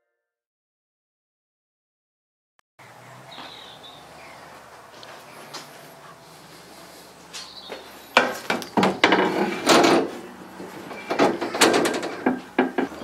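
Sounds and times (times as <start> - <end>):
wheel rim knocking on metal cabinet: 8.2 - 10.1, 11.0 - 13.0.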